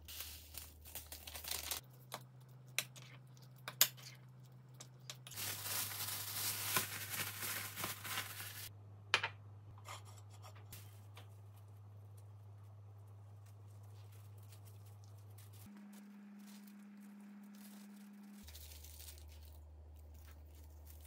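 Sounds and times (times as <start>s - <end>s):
plastic packaging rustling: 0.1s - 1.9s, 5.2s - 8.7s, 10.8s - 21.0s.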